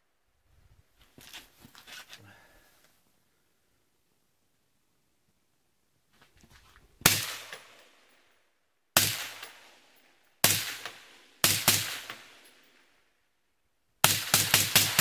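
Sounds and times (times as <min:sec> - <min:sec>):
suppressed rifle shots: 0:07.0 - 0:08.0, 0:09.0 - 0:09.8, 0:10.4 - 0:12.4, 0:14.0 - 0:15.0.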